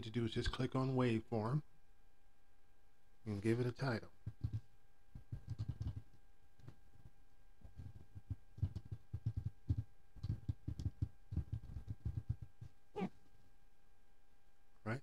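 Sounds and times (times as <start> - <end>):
faint electrical hum: 0.0 - 15.0
keyboard typing: 4.2 - 6.8, 7.8 - 12.7.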